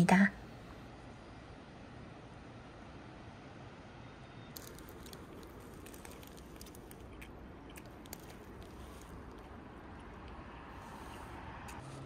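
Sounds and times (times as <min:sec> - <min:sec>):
faint background noise: 0:00.0 - 0:12.0
paper packaging crackling: 0:04.6 - 0:09.6.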